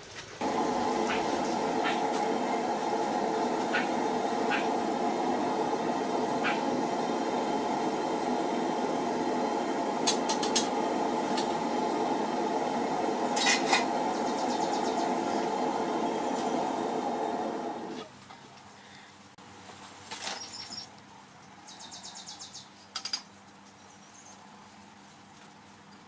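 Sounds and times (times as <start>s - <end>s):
steady rushing noise: 0.4s - 18.0s.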